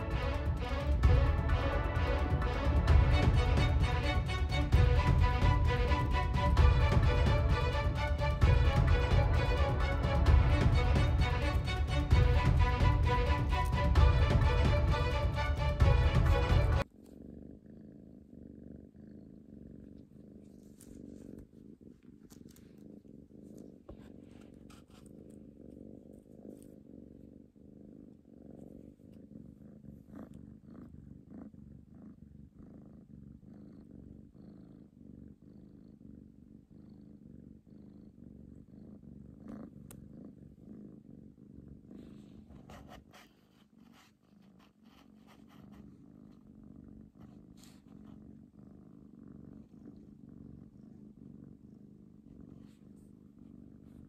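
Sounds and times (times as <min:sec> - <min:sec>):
cat purring: 0:00.0 - 0:54.0
faint rustles and clicks: 0:19.8 - 0:27.5, 0:41.9 - 0:48.3.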